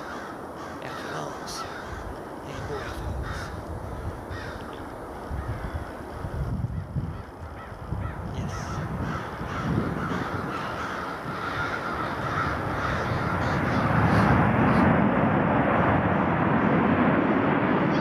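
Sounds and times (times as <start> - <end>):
birds calling: 0.0 - 14.9
jet engines roaring: 6.8 - 18.0.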